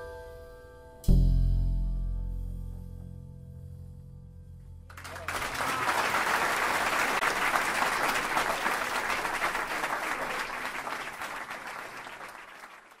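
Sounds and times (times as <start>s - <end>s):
audience applauding: 4.9s - 13.0s.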